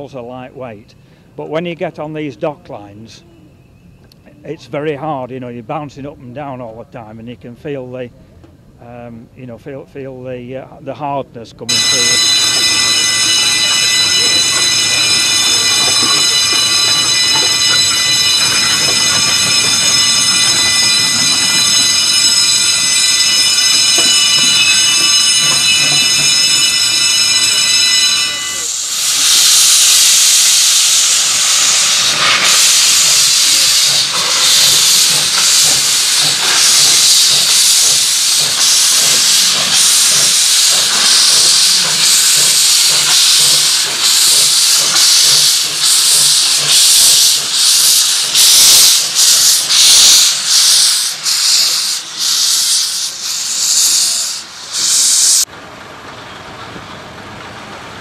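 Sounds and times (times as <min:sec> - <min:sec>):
steam hissing: 0:11.7 - 0:55.5
steam locomotive exhaust beats: 0:11.7 - 0:58.0.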